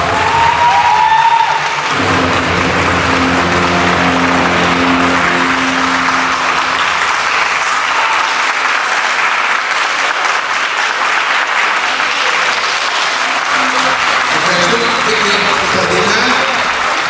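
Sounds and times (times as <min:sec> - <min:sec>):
music: 0:00.0 - 0:08.2
audience applauding: 0:00.0 - 0:17.0.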